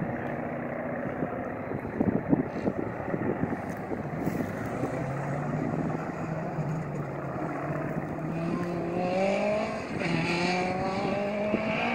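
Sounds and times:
distant aircraft engine droning: 0:00.0 - 0:11.9
wind rumble: 0:00.0 - 0:11.9
engine rising in pitch: 0:04.1 - 0:11.9.

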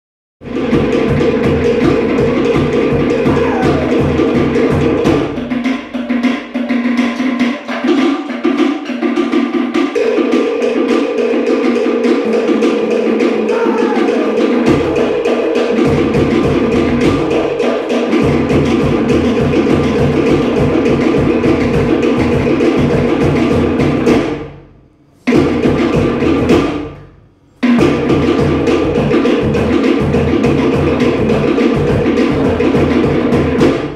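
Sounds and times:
slit log drums playing: 0:00.5 - 0:09.5, 0:11.6 - 0:24.3.

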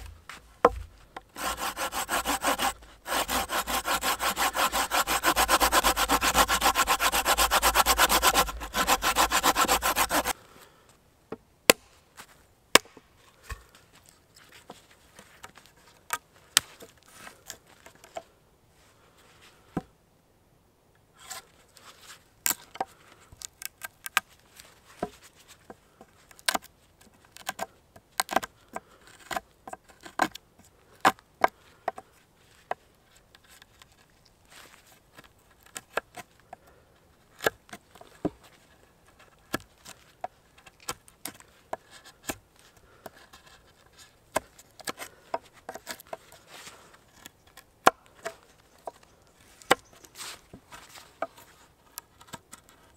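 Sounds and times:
knife carving wood: 0:00.0 - 0:10.4, 0:22.5 - 0:25.2, 0:25.9 - 0:30.4, 0:35.2 - 0:52.9
hand saw cutting wood: 0:00.6 - 0:10.4.

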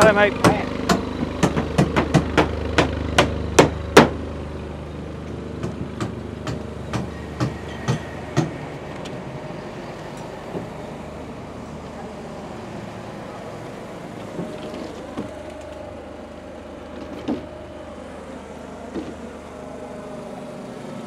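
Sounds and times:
low engine hum: 0:00.0 - 0:21.0
hand hammer strikes: 0:00.4 - 0:04.2, 0:05.6 - 0:08.6.

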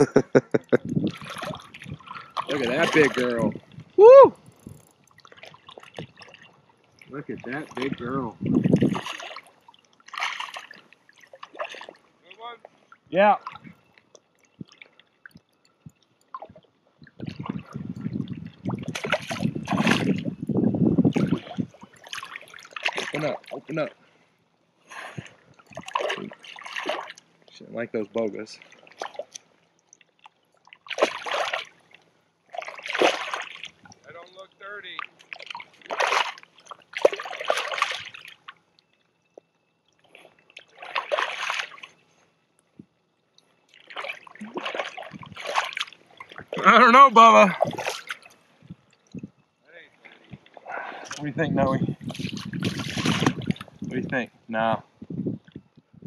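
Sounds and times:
water sloshing: 0:00.0 - 0:54.4
fish splashing at water surface: 0:01.1 - 0:04.2, 0:04.9 - 0:12.1, 0:18.5 - 0:20.4, 0:21.1 - 0:23.6, 0:24.9 - 0:27.3, 0:28.6 - 0:34.0, 0:34.9 - 0:38.8, 0:40.0 - 0:42.1, 0:43.7 - 0:46.7, 0:47.4 - 0:48.5, 0:52.0 - 0:53.8.

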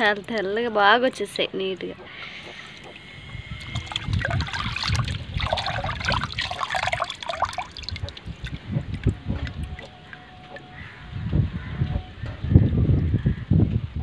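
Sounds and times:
water splashing and trickling: 0:02.4 - 0:11.3.

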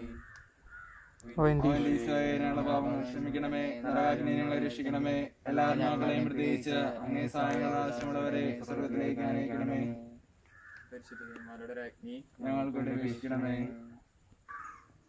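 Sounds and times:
man singing a devotional chant: 0:01.4 - 0:10.2, 0:12.4 - 0:13.9.

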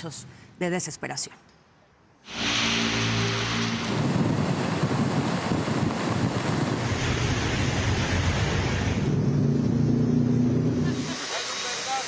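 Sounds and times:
floodwater rushing: 0:02.3 - 0:09.1, 0:10.8 - 0:12.0
wind buffeting microphone: 0:03.3 - 0:09.6.

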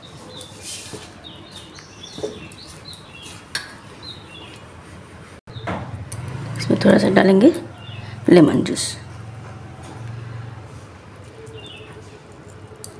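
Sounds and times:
small birds chirping: 0:00.0 - 0:04.7, 0:06.6 - 0:09.2, 0:11.3 - 0:12.9.

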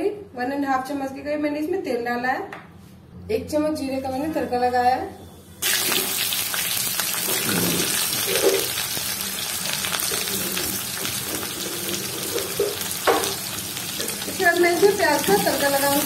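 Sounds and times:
seeds and onion sizzling in oil: 0:05.6 - 0:16.0.

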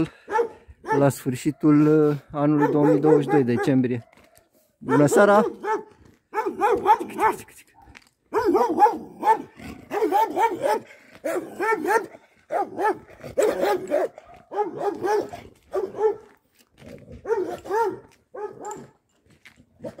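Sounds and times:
dog barking: 0:00.2 - 0:16.4, 0:17.2 - 0:19.0.

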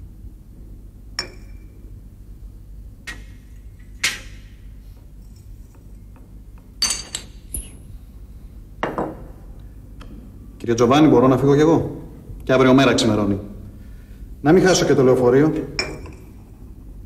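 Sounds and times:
low steady hum: 0:00.0 - 0:17.0
glassware clinking: 0:01.2 - 0:01.8, 0:06.8 - 0:07.8, 0:15.8 - 0:16.5.

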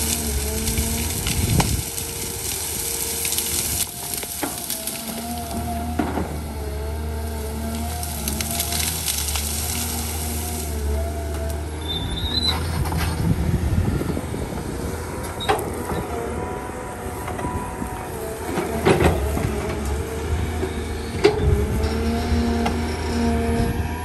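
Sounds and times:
branches cracking: 0:00.0 - 0:11.7
diesel engine running: 0:00.0 - 0:24.0.

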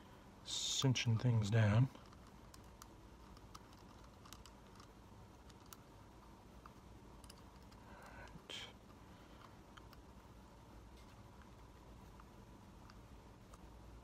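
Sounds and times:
small metal parts clicking: 0:02.0 - 0:05.8.

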